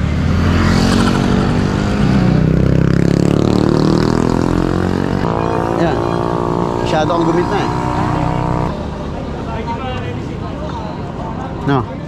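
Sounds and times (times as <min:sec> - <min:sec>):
vehicle engine passing by: 0:00.0 - 0:09.3.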